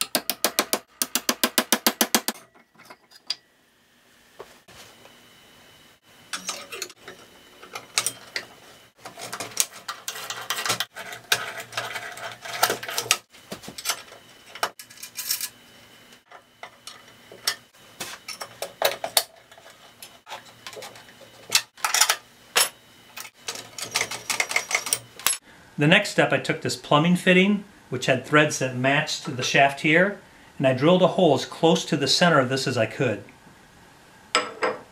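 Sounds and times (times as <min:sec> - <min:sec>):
small metal parts clinking: 0:14.8 - 0:15.6, 0:21.6 - 0:25.4.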